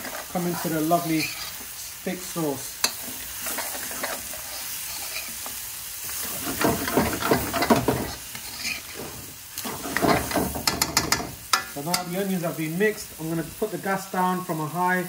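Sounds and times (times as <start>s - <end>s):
metal spoon scraping a pan: 0.0s - 2.0s, 2.8s - 12.1s
onions sizzling in oil: 0.0s - 15.0s.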